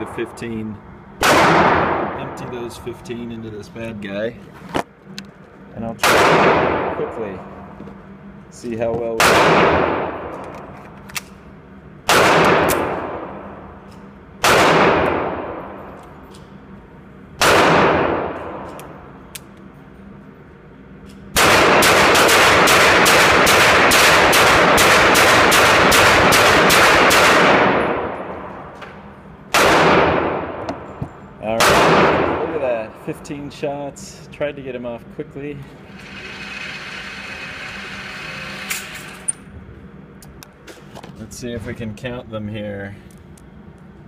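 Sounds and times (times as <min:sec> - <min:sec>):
pistol shots echoing indoors: 0:01.2 - 0:02.3, 0:06.0 - 0:07.2, 0:09.2 - 0:10.6, 0:12.0 - 0:13.8, 0:14.4 - 0:16.0, 0:17.4 - 0:19.0, 0:21.3 - 0:32.6.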